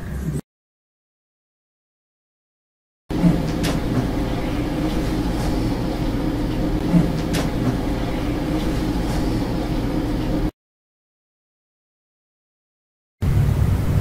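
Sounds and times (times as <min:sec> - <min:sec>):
low hum and hiss: 0:03.1 - 0:10.5.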